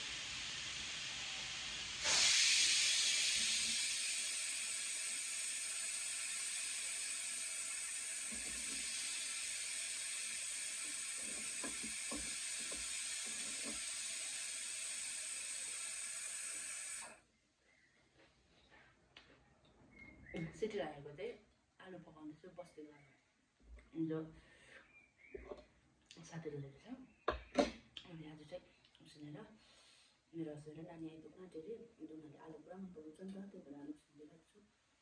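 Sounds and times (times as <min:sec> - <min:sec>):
steady hiss: 0:00.0 - 0:17.2.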